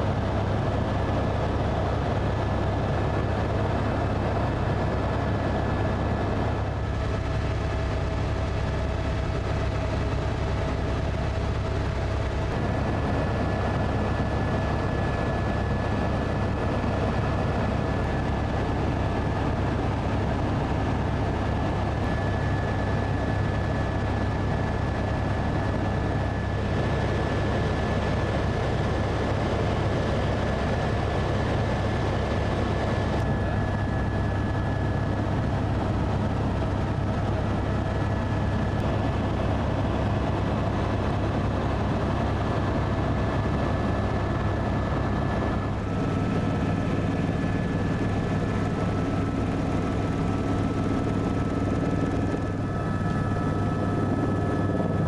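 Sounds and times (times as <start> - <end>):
helicopter engine and rotor drone: 0.0 - 55.0.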